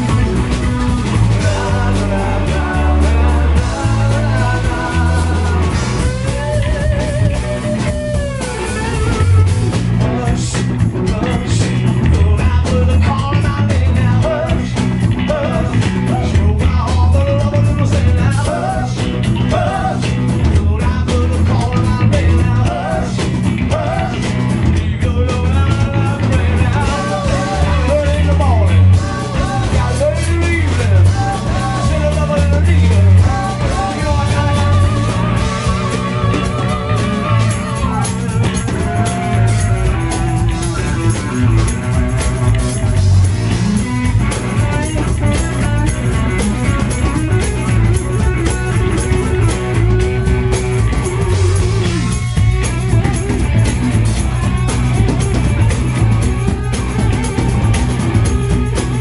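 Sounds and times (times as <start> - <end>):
drums: 0.0 - 59.0
electric guitars: 0.0 - 59.0
lead vocals: 0.0 - 59.0
pulsing electric bass line: 0.0 - 59.0.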